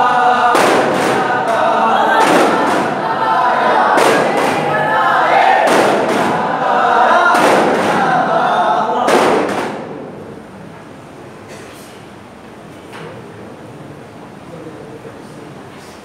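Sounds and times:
men chanting in chorus: 0.0 - 9.2
frame drums beating: 0.0 - 10.5.

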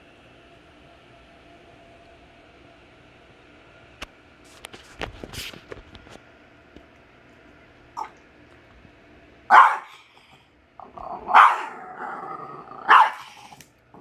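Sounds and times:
small dog barking: 9.5 - 10.1, 11.1 - 12.0, 12.8 - 13.6
dog growling: 10.8 - 14.0.

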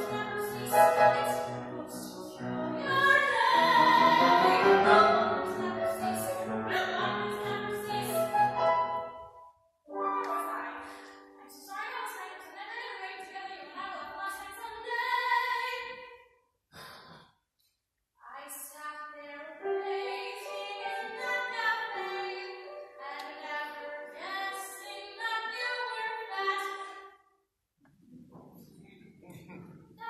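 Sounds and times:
girl singing: 0.0 - 8.3, 10.2 - 16.0, 18.2 - 27.0.

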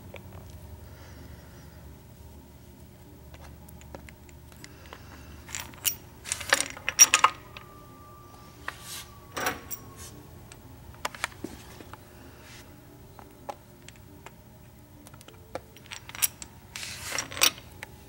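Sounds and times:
metal bearing caps clinking: 3.3 - 7.7, 8.6 - 10.1, 15.0 - 17.9.

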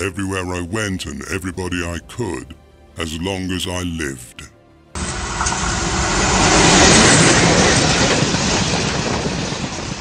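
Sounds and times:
train passing close by: 5.0 - 10.0.

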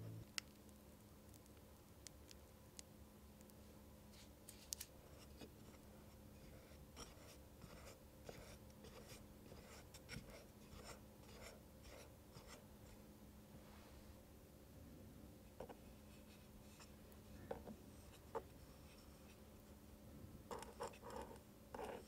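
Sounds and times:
palette knife scraping cream: 6.4 - 12.6.

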